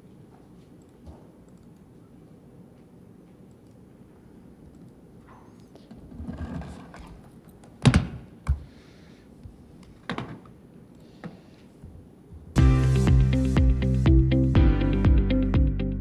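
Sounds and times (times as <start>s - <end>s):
music: 12.6s - 16.0s.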